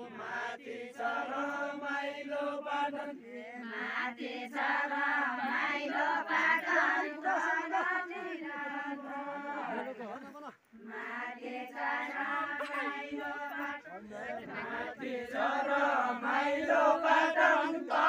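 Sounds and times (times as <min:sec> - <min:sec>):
group singing folk song: 0:00.0 - 0:18.0.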